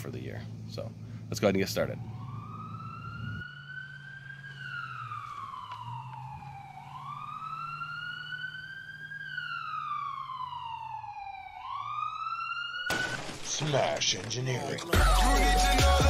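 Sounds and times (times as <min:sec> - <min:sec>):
steady low hum: 0:00.0 - 0:11.0
siren wailing: 0:01.3 - 0:16.0.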